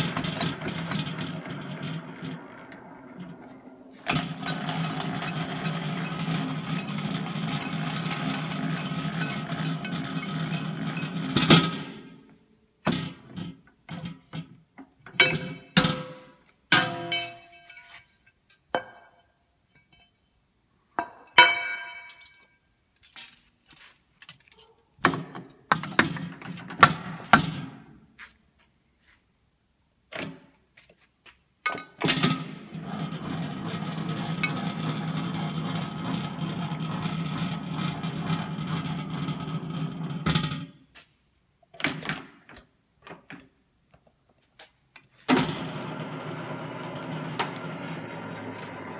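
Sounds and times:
metal parts clinking: 22.0s - 24.8s.

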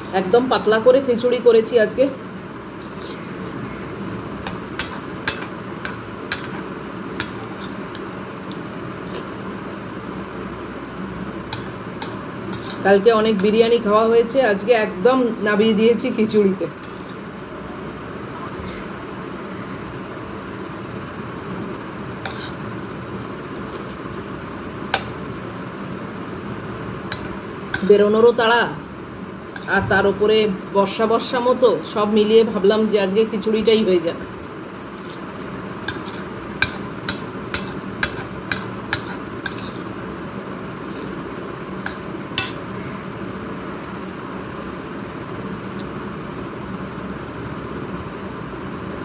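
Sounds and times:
background hum: 0.0s - 49.0s
metal spoon clinking on plate: 4.4s - 6.6s, 11.5s - 12.8s, 35.9s - 39.8s, 41.8s - 42.7s.

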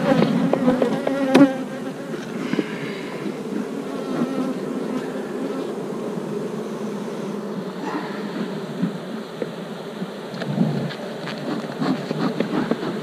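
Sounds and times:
bees buzzing: 0.0s - 13.0s.

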